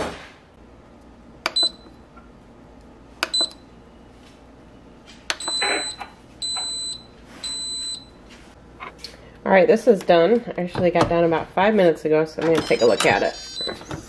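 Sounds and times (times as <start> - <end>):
control panel beeps: 1.5 - 2.0, 3.2 - 3.6, 5.3 - 8.1, 12.5 - 13.9
long steady beep: 5.4 - 8.2.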